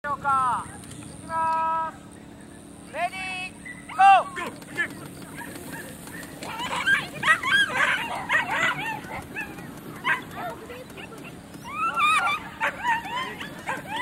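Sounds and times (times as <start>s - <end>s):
dogs yipping and whining: 3.5s - 14.0s.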